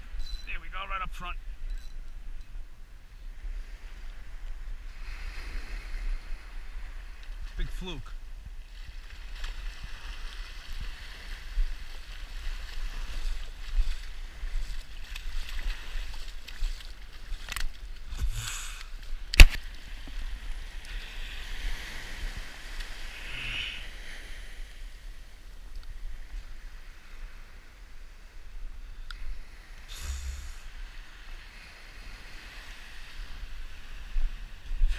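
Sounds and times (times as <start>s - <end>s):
surf washing up beach: 3.4s - 34.9s.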